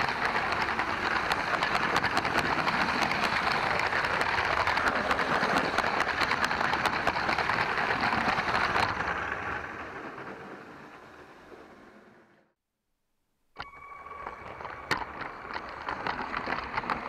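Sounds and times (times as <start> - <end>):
toy train rattling on track: 0.0 - 11.1, 13.6 - 17.0.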